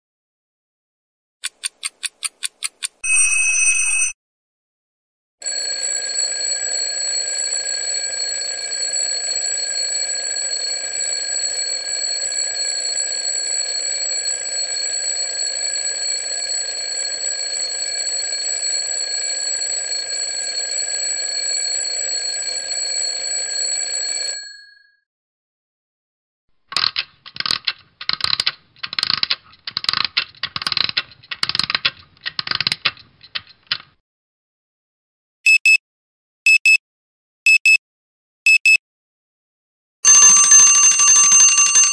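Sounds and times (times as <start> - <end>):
alarm clock bell ringing: 5.4 - 24.8, 40.0 - 41.9.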